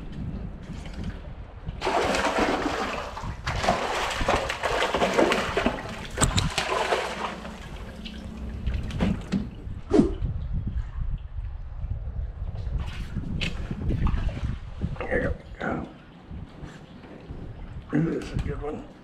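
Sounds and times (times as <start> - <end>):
fish splashing at water surface: 1.8 - 9.4.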